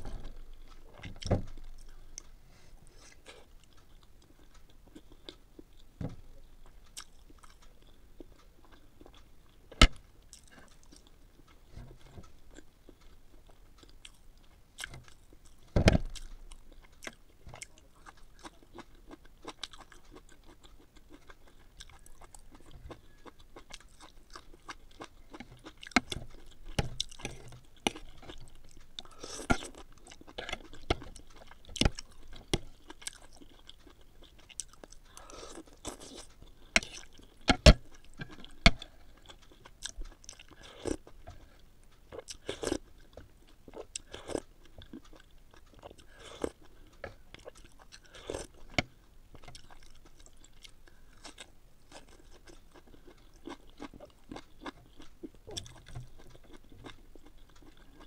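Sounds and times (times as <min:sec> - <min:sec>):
person chewing food: 0:00.0 - 0:58.0.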